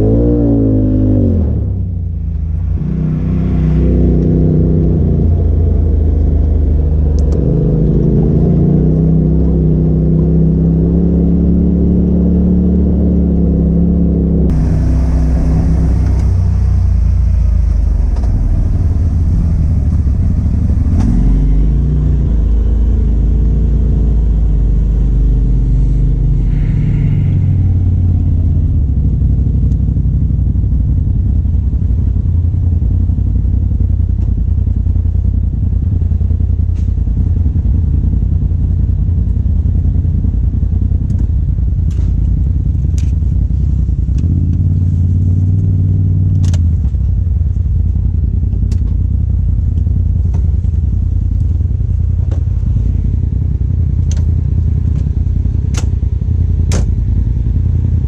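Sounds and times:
off-road vehicle engine running: 0.0s - 58.0s
sharp clicks and knocks: 46.3s - 47.0s, 48.5s - 49.0s, 54.0s - 55.1s, 55.7s - 56.0s, 56.7s - 57.0s.

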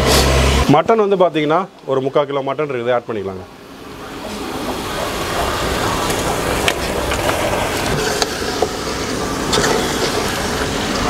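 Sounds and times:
hiss of cooking: 0.0s - 0.8s, 3.5s - 11.0s.

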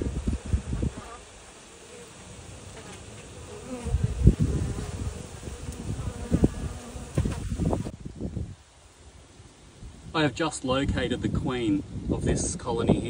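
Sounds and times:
honeybees buzzing: 0.0s - 7.9s
low bumps on microphone: 3.8s - 7.9s.

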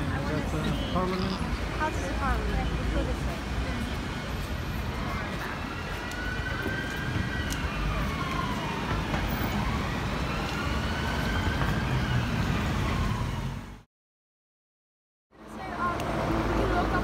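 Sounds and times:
road traffic rumble: 0.0s - 13.9s, 15.4s - 17.0s
siren wailing: 5.1s - 13.7s.

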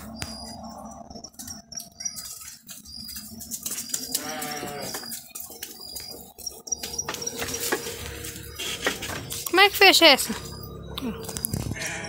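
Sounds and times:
sheep bleating: 4.1s - 5.1s, 11.8s - 12.0s
scattered clicks and knocks: 4.9s - 10.6s.

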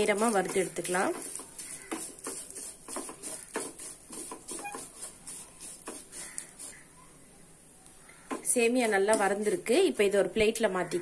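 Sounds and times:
wooden spatula scraping metal pan: 0.0s - 6.8s.

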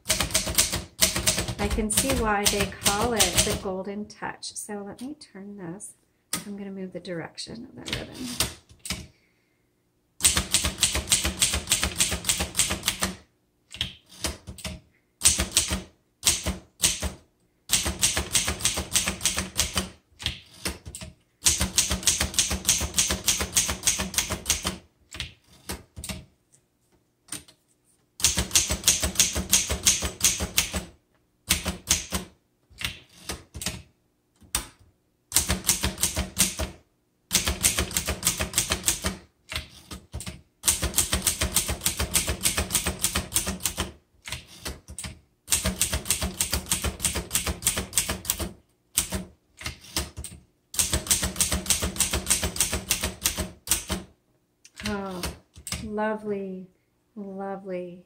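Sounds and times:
typewriter keys clacking: 0.0s - 3.6s.

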